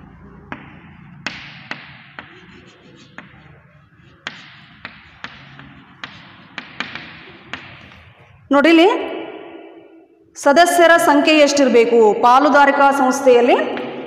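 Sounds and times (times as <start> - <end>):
chalk tapping on chalkboard: 0.0 - 8.4.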